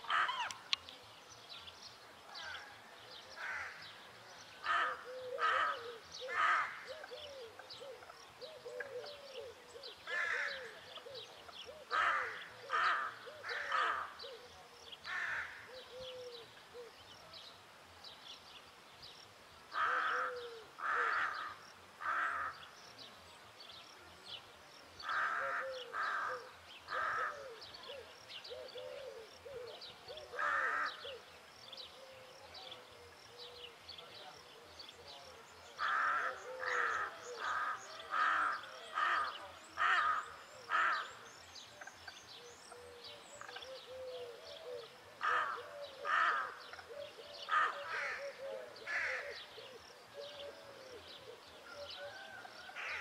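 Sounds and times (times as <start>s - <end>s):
rook cawing: 0.1s - 0.6s, 3.4s - 3.9s, 4.6s - 6.9s, 10.1s - 10.8s, 11.9s - 14.2s, 15.1s - 15.8s, 19.7s - 22.6s, 25.0s - 27.5s, 30.4s - 31.2s, 35.8s - 41.2s, 45.2s - 46.6s, 47.5s - 49.4s, 52.7s - 53.0s.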